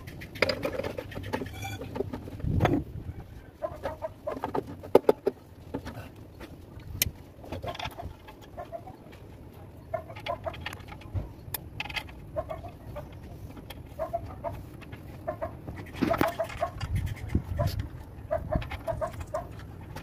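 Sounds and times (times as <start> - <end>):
chickens clucking: 3.0 - 4.7, 7.5 - 9.2, 9.8 - 10.6, 12.3 - 19.5.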